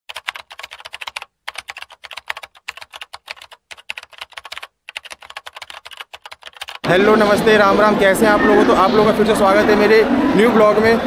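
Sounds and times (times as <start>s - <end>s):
keyboard typing clicks: 0.1s - 6.8s.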